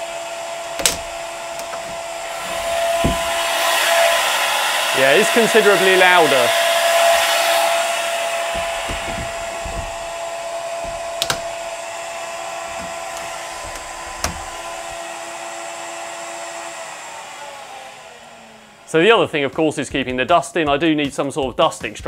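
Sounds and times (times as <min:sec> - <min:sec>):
router spindle whine: 0:00.0 - 0:19.1
panel knocks: 0:00.8 - 0:03.7, 0:08.2 - 0:12.0, 0:12.6 - 0:15.0.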